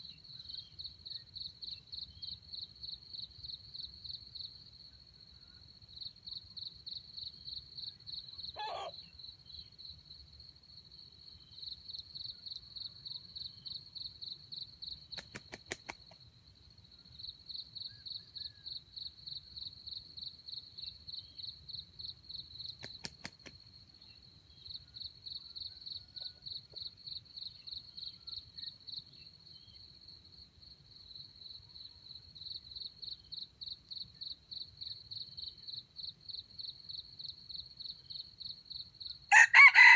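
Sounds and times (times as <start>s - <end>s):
high-pitched insect chirping: 31.4s - 39.9s.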